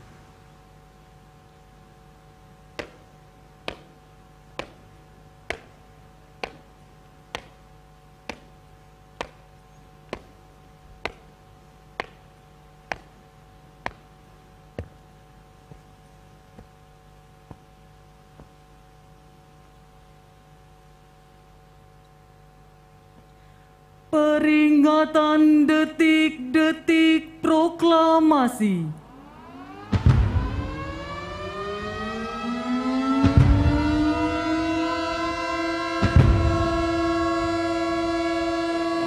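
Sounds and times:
faint steady hum: 0.0 - 39.0
hard shoes marching on pavement: 2.6 - 18.8.

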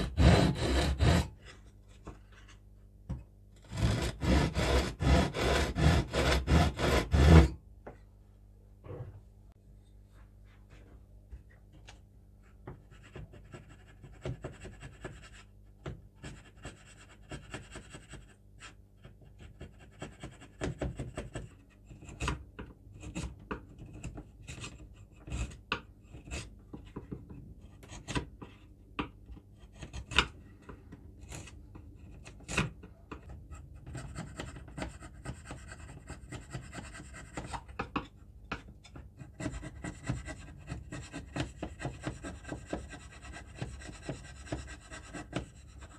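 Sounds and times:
chisel scraping wood: 0.0 - 2.6, 3.6 - 7.6, 16.2 - 45.9.

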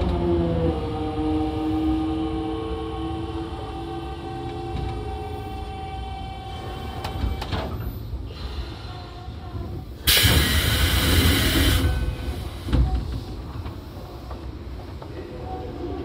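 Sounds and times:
compressed air hiss: 10.1 - 12.7.

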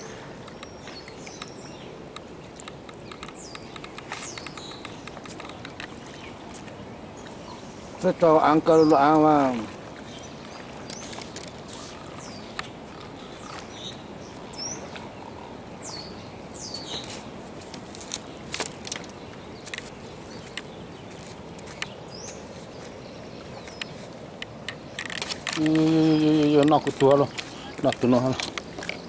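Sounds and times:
small birds chirping: 0.0 - 29.0
steady background hiss: 0.0 - 29.0
handling clicks and rustles: 0.4 - 6.8, 16.9 - 22.9, 23.6 - 29.0.

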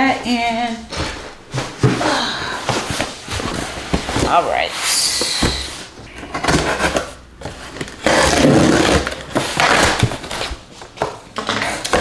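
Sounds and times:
box cutter slicing packing tape: 7.9 - 10.5.

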